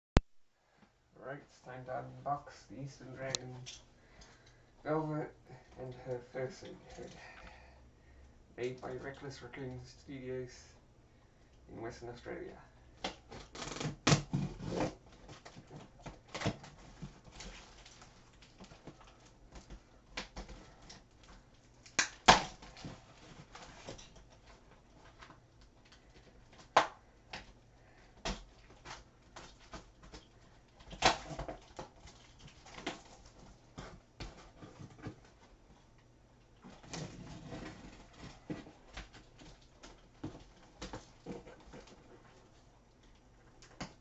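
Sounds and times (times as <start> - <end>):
cardboard flaps rustling and scraping: 36.7 - 42.7.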